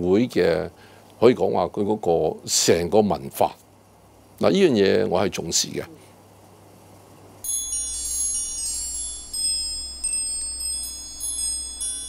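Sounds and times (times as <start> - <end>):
low steady hum: 0.0 - 12.0
bright chime tones: 7.4 - 12.0.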